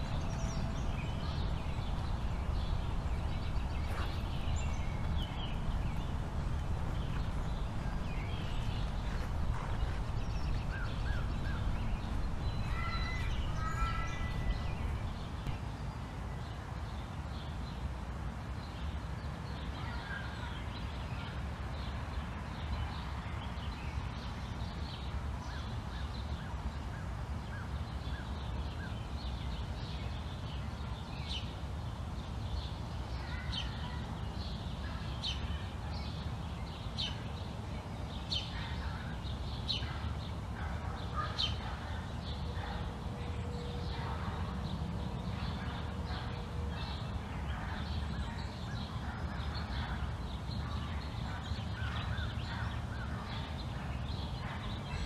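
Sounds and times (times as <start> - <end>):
birds chirping and calling: 0.0 - 15.6, 33.1 - 55.0
steady low rumble: 0.0 - 15.7.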